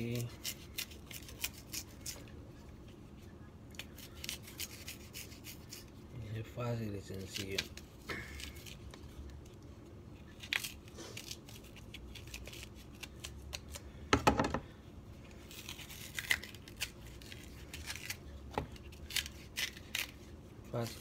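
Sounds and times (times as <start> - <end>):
knife scraping banana peel: 0.0 - 2.3, 3.8 - 6.0, 15.4 - 21.0
peel tearing: 0.0 - 2.3, 3.7 - 5.9, 7.1 - 9.6, 10.2 - 13.9, 15.3 - 21.0
knife knocking on plastic board: 14.1 - 14.6.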